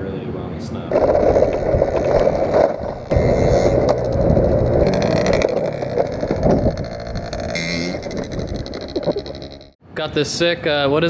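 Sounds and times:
moped engine running: 0:03.0 - 0:09.8.

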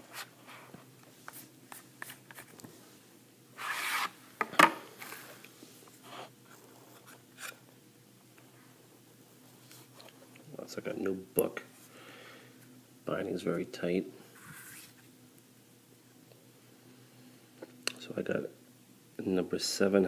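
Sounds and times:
cardboard rasping slide: 0:03.6 - 0:04.2.

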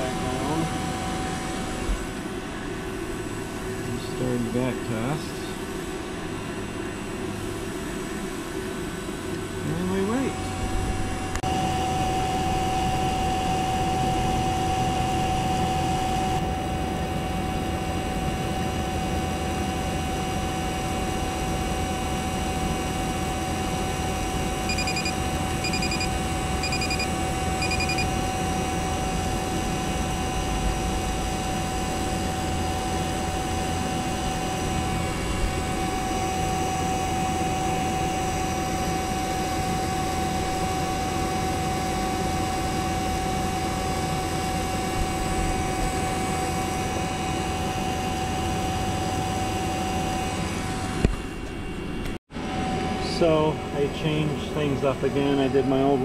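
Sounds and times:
vacuum pump droning: 0:00.0 - 0:56.0
short high electronic beeps: 0:24.7 - 0:28.1.

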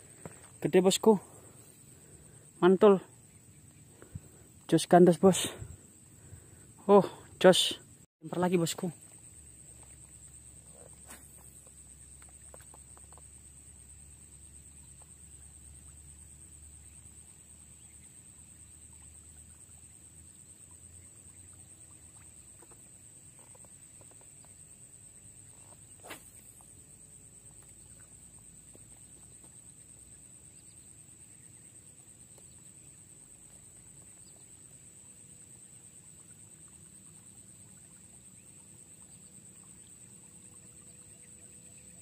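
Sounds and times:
fishing rod swish-click: 0:26.0 - 0:26.6.

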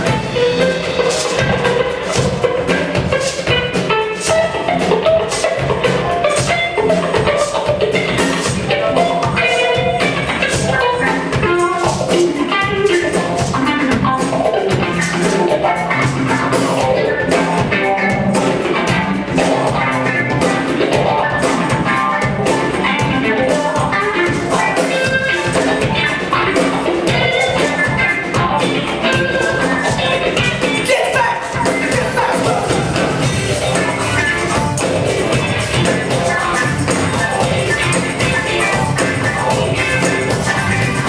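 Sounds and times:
live band playing: 0:00.0 - 0:41.0.

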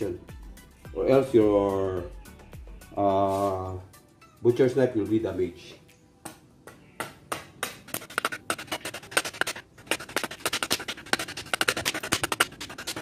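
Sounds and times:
knife chopping wood: 0:06.3 - 0:13.0.

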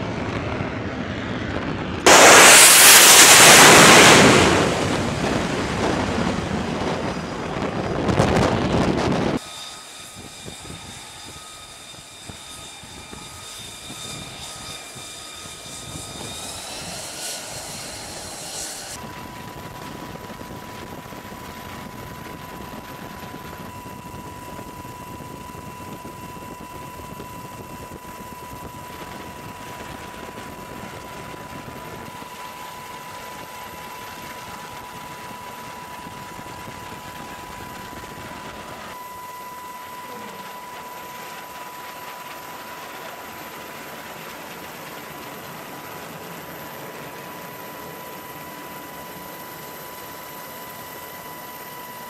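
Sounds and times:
jet engine whine: 0:00.0 - 0:52.0.

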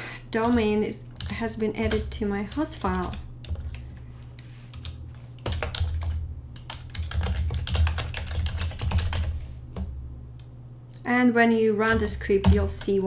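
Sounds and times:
typing on computer keyboard: 0:00.5 - 0:03.8, 0:04.7 - 0:09.3, 0:11.8 - 0:13.0.

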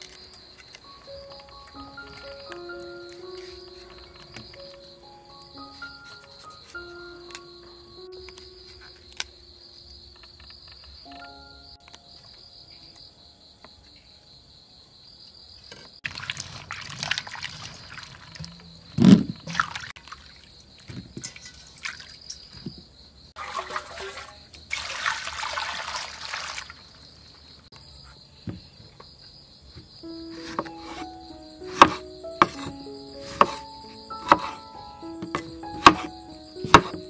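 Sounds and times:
crickets chirping: 0:00.0 - 0:37.0
water splashing and trickling: 0:16.0 - 0:27.3.

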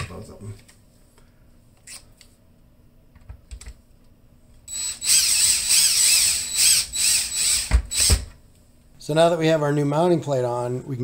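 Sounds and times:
drill motor whine: 0:04.7 - 0:08.2.

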